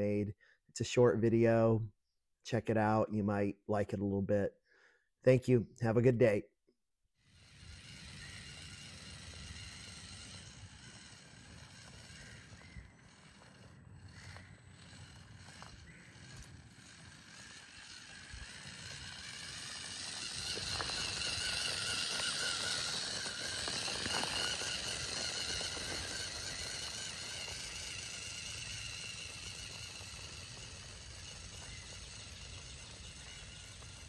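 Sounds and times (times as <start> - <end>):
toy truck motors whining: 7.2 - 34.0
wheels on gravel: 7.3 - 34.0.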